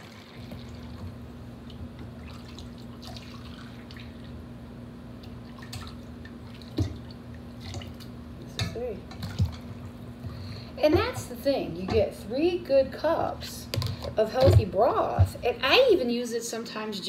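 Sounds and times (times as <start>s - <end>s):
liquid dripping: 0.0s - 4.4s, 5.2s - 11.2s
steady low hum: 0.0s - 16.6s.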